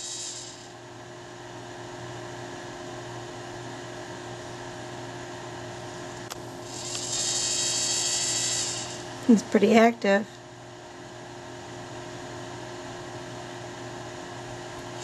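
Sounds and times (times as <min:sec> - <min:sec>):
faint hiss: 0:00.0 - 0:00.7
high whirring hiss: 0:00.0 - 0:02.2, 0:05.5 - 0:10.2
electrical hum: 0:00.0 - 0:15.0.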